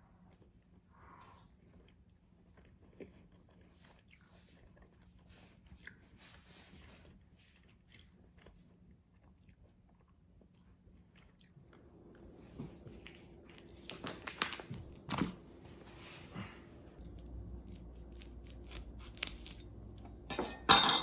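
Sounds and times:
crunching sugar glaze: 0:07.1 - 0:16.0, 0:17.0 - 0:21.0
low hum: 0:11.6 - 0:21.0.

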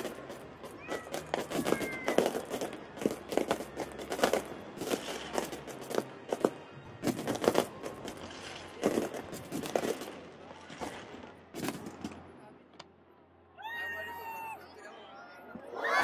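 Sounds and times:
firework shells bursting: 0:00.0 - 0:12.3.

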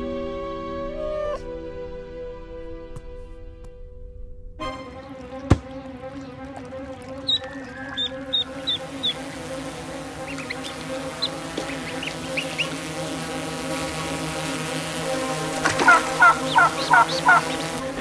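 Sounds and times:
drone buzzing: 0:04.6 - 0:18.0
duckling peeps: 0:07.0 - 0:09.5, 0:10.1 - 0:13.0, 0:15.6 - 0:17.8
loud quack-like calls: 0:07.2 - 0:18.0.

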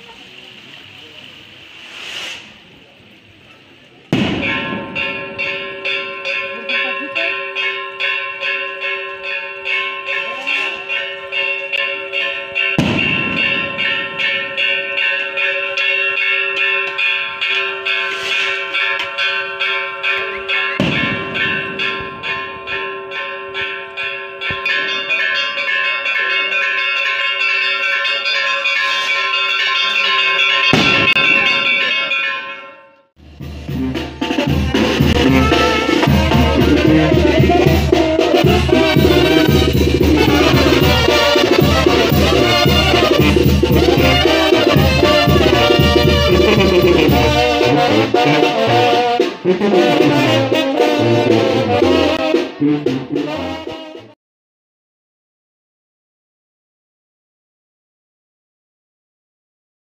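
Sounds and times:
church bells pealing: 0:04.0 - 0:53.9.

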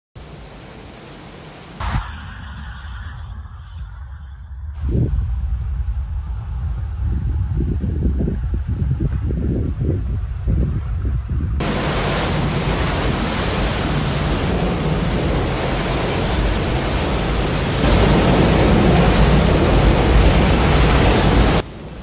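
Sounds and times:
floodwater rushing: 0:00.2 - 0:03.1, 0:11.6 - 0:22.0.

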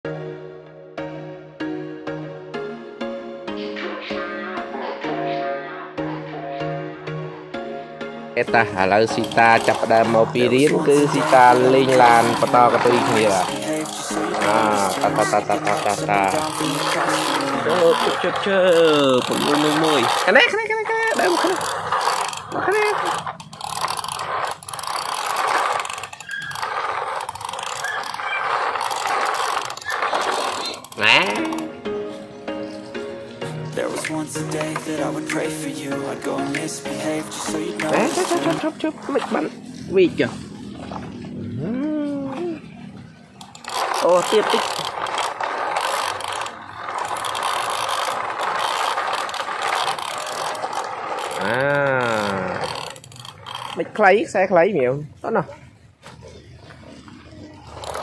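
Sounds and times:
toy trucks clicking rattle: 0:08.4 - 0:32.6, 0:33.3 - 0:41.4, 0:42.3 - 0:54.4, 0:55.5 - 0:58.0
person calling out: 0:10.1 - 0:16.8, 0:31.0 - 0:31.7, 0:41.6 - 0:42.6.

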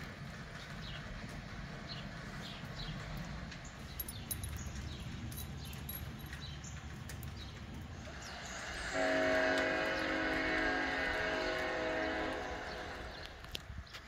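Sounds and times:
train horn chord: 0:08.6 - 0:13.4.

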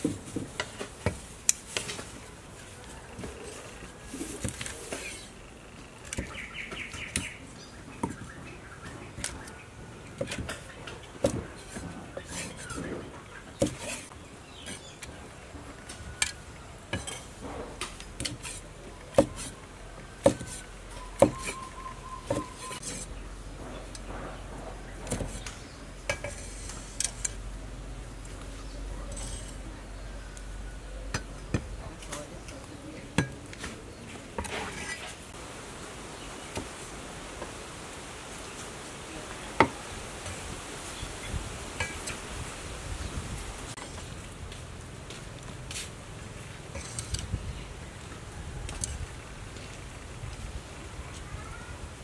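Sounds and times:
cleaver chopping on wooden board: 0:13.6 - 0:14.1, 0:18.2 - 0:19.5, 0:20.2 - 0:20.6, 0:21.2 - 0:21.6
cleaver chopping on wooden block: 0:19.1 - 0:19.5, 0:20.2 - 0:20.6, 0:21.2 - 0:21.6
background hiss: 0:35.1 - 0:47.8.

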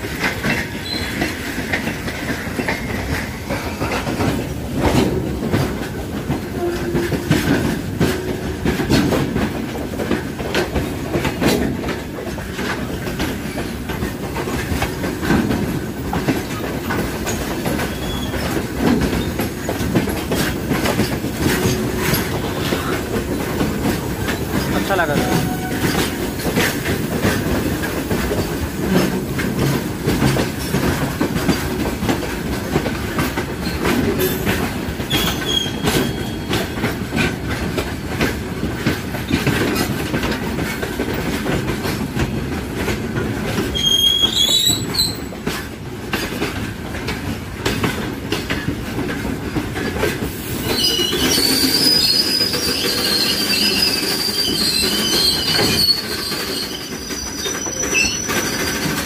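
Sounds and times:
train wheels rumbling on rail: 0:00.0 - 0:59.0
wheel squealing: 0:50.6 - 0:59.0.

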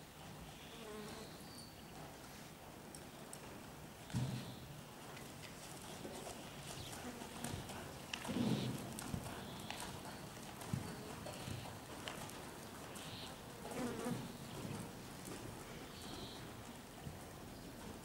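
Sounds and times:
hoofbeats on sand: 0:04.0 - 0:18.0.

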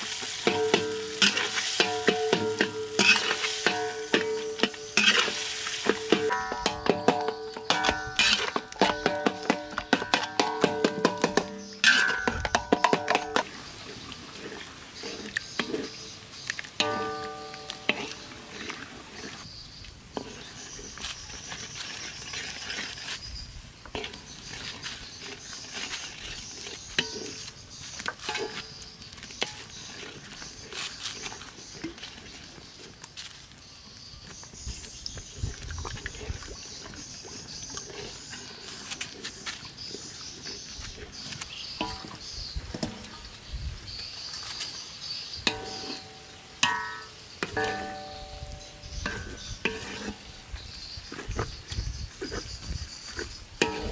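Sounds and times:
steady high hiss: 0:00.0 - 0:08.9, 0:41.5 - 0:50.8
spatula knocking and scraping wok: 0:00.0 - 0:13.6, 0:14.4 - 0:19.4, 0:20.1 - 0:20.6, 0:23.9 - 0:30.6, 0:39.9 - 0:43.2, 0:45.4 - 0:51.5, 0:53.2 - 0:53.9
spatula stirring thick sauce: 0:00.0 - 0:19.5, 0:20.1 - 0:32.8, 0:36.4 - 0:43.2, 0:47.4 - 0:53.9.

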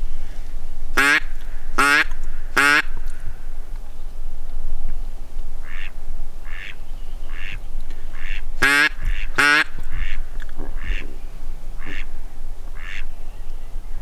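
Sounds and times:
duck quacking: 0:01.0 - 0:02.9, 0:05.6 - 0:10.2, 0:10.8 - 0:11.1, 0:11.8 - 0:12.1, 0:12.8 - 0:13.1.

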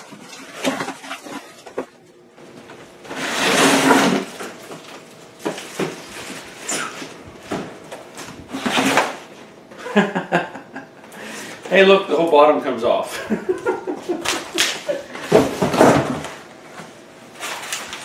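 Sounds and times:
cardboard scraping and rustling: 0:03.0 - 0:09.3.

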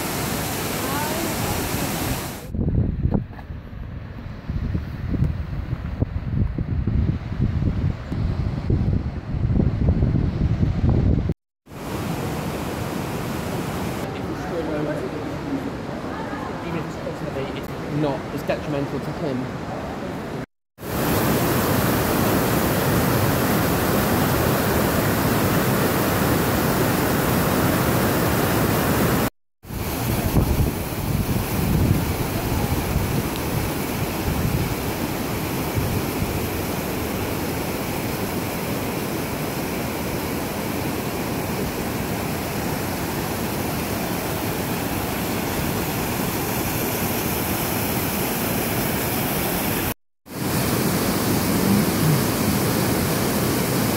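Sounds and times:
waterfall rushing: 0:00.0 - 0:02.5, 0:11.7 - 0:19.7, 0:20.8 - 0:53.9.

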